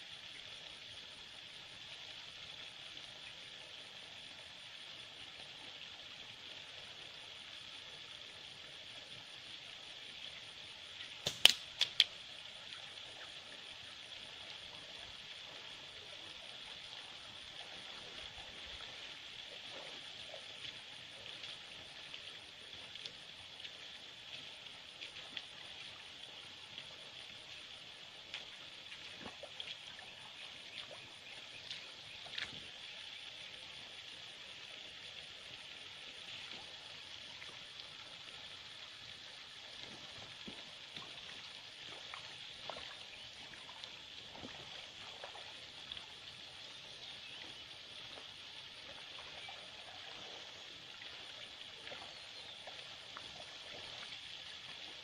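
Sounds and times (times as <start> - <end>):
high background hiss: 0.0 - 55.0
slingshot shots striking stones: 11.2 - 12.0
boots splashing in stream: 11.2 - 12.1, 17.8 - 32.7, 39.7 - 45.7.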